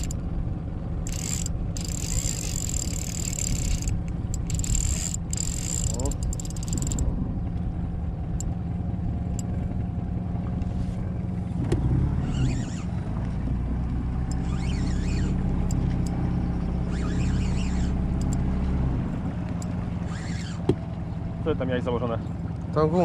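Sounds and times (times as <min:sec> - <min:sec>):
boat motor humming: 0:00.0 - 0:23.0
brief high squeaks: 0:12.2 - 0:13.0, 0:14.3 - 0:16.1, 0:16.7 - 0:18.4, 0:20.0 - 0:20.7.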